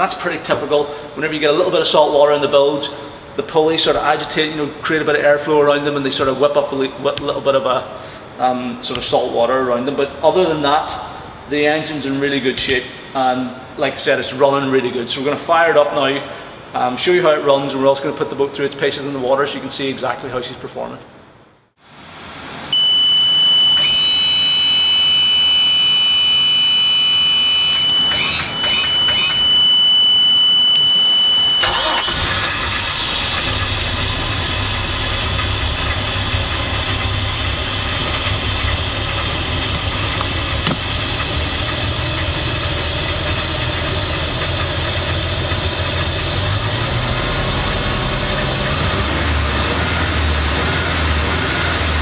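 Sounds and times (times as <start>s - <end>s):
high-pitched warning buzzer: 22.8s - 31.7s
boat engine cranking: 31.6s - 52.0s
boat engine idling: 33.0s - 48.8s.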